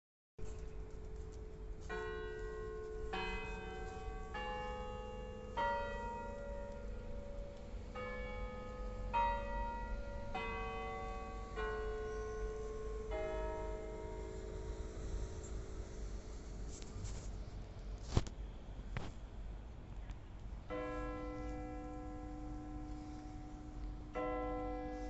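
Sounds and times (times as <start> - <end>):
tower bells playing a tune: 1.8 - 15.0, 20.7 - 25.0.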